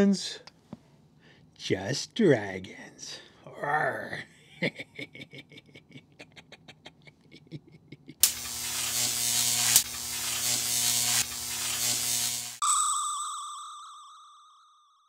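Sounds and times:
electric static buzz: 8.2 - 12.6
sharp crackle: 8.2 - 12.6.

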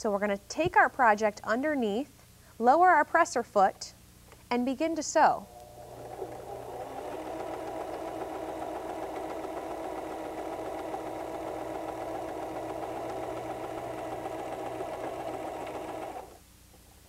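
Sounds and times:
sewing machine running: 5.5 - 16.4.

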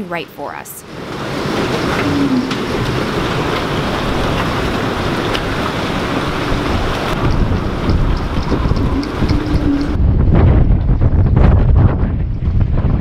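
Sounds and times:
strong wind on microphone: 0.9 - 13.0.

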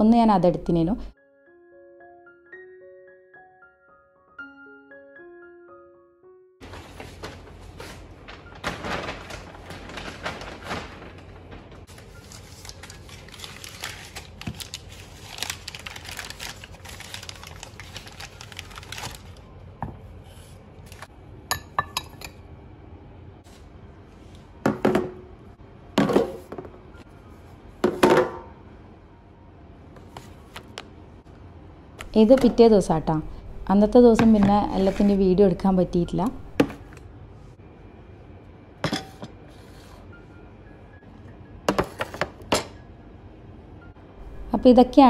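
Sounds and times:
packing paper rustling and crackling: 6.6 - 19.5.

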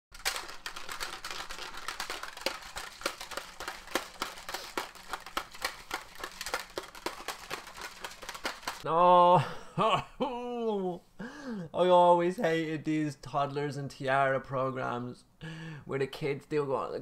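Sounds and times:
plastic shaker bottle rattling: 0.1 - 8.8.

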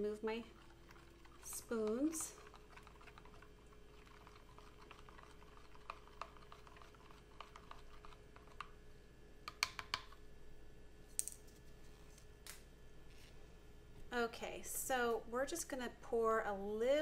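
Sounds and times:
plastic clicks and taps: 9.5 - 10.2.

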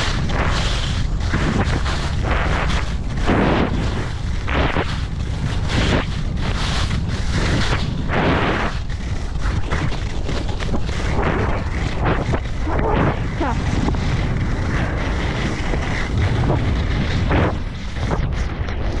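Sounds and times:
skis scraping over hard snow: 0.0 - 19.0
wind buffeting microphone: 0.0 - 19.0.

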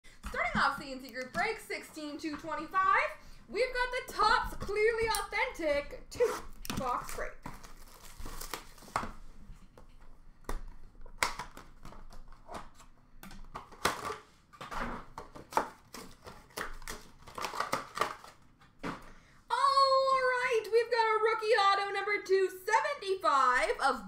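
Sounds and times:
sharp clicks and taps: 0.1 - 2.9
cardboard and wrapper crinkling: 6.3 - 18.8.

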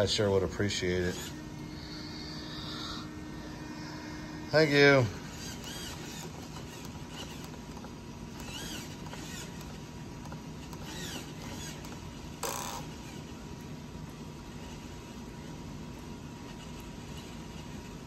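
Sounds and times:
servos whirring: 0.6 - 13.5.

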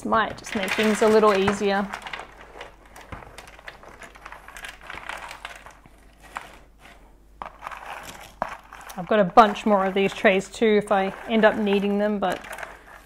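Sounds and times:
puzzle pieces clattering: 0.3 - 13.0.

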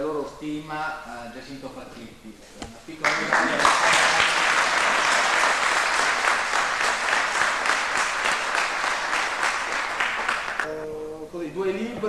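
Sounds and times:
audience applauding: 3.0 - 10.7.

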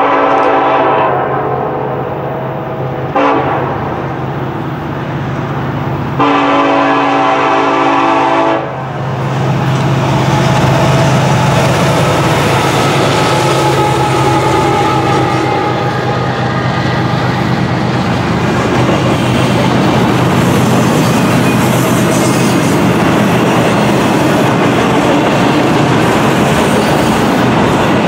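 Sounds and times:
locomotive air horn blasts: 0.0 - 3.9, 6.2 - 8.9, 12.3 - 17.7
train wheels on rails: 2.5 - 28.0.

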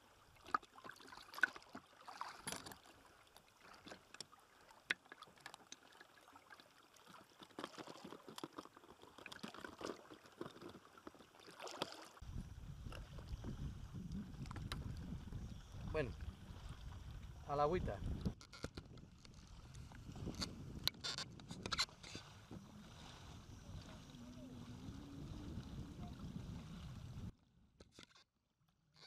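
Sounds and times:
water splashes and trickles: 0.0 - 27.4
wind rumble on microphone: 12.2 - 27.4.

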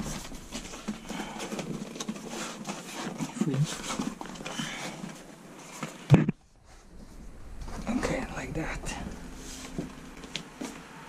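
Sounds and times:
plastic liner rustling and crinkling: 0.0 - 8.2.

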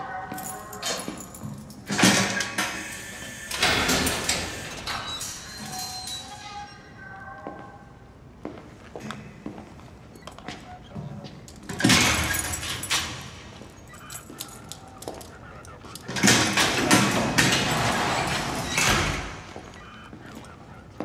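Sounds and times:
metal gate clanking: 0.5 - 6.8, 11.6 - 15.1, 16.0 - 19.6
metal gate rolling slide: 1.9 - 6.7, 16.1 - 19.4.

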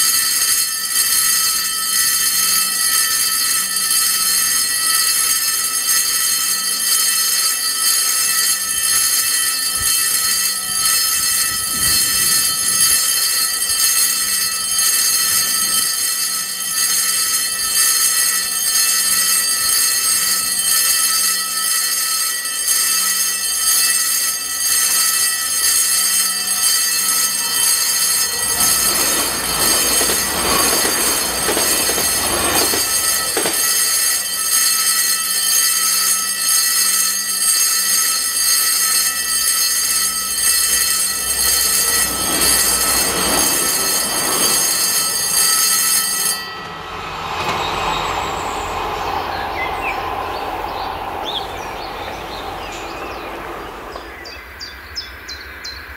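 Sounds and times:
level-crossing warning bell: 0.0 - 55.9
train passing on rails: 8.2 - 21.4, 24.0 - 35.1, 38.8 - 55.9.

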